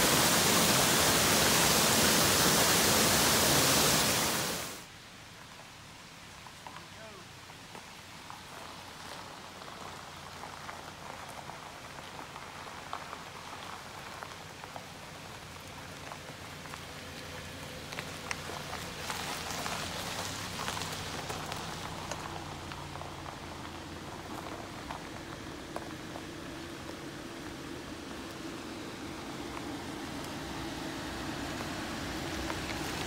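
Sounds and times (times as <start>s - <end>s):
car tyres crunching over gravel: 6.3s - 33.0s
low engine hum: 8.7s - 33.0s.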